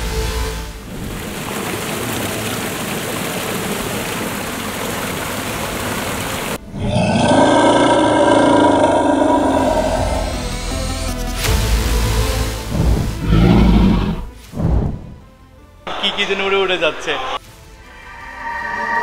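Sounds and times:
background music with sustained tones: 0.0s - 1.7s, 6.6s - 19.0s.

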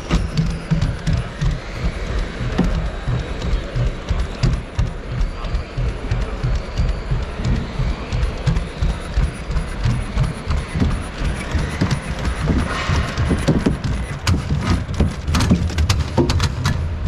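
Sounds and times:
robot feet knocking on plywood: 0.0s - 16.8s
robot mechanical clatter: 0.0s - 17.0s.

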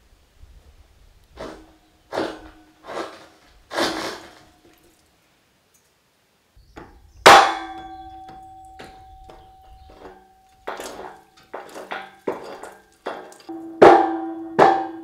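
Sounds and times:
hammer striking steel beam: 6.8s - 15.0s
steel beam ringing: 7.3s - 15.0s.

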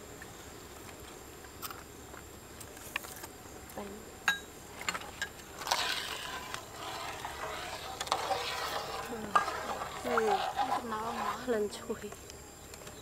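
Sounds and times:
soup being stirred: 4.9s - 11.5s.

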